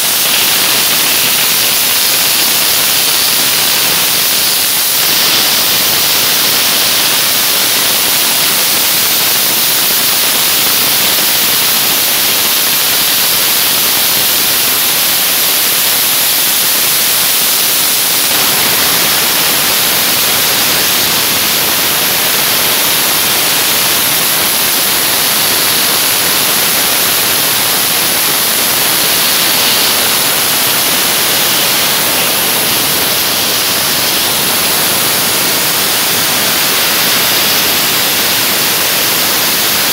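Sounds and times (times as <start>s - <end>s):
dry-ice blasting gun hissing: 0.0s - 39.9s.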